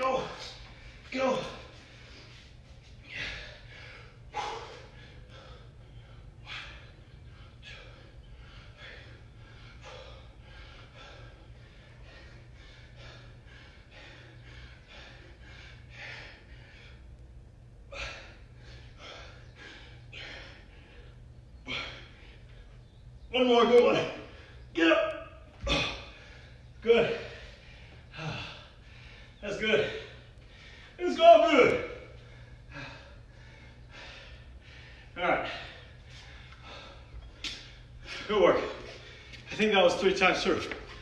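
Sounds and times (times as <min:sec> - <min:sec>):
man breathing hard: 0:00.0 - 0:22.9, 0:25.4 - 0:31.1, 0:31.8 - 0:39.5
steady low hum: 0:00.0 - 0:41.0.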